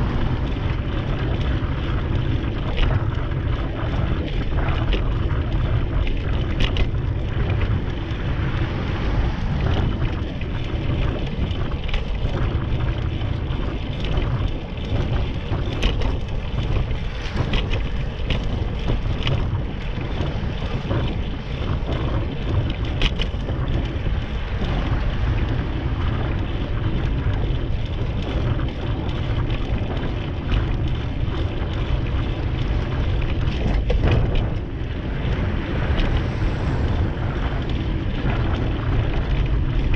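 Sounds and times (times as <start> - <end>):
road rumble: 0.0 - 39.9
wind buffeting microphone: 0.0 - 39.9
light clicks and rattles: 2.6 - 8.2, 9.7 - 24.8.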